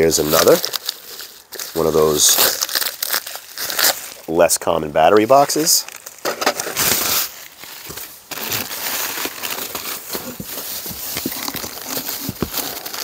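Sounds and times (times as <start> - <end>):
bubble wrap crinkling: 0.0 - 4.6, 5.2 - 13.0
hands rummaging in packing: 5.4 - 13.0.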